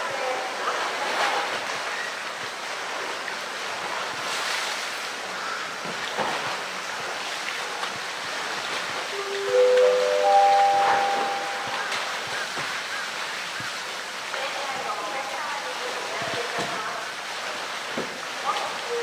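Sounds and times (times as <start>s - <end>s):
water splashing and sloshing: 0.0s - 19.0s
steady musical tones: 9.1s - 12.2s.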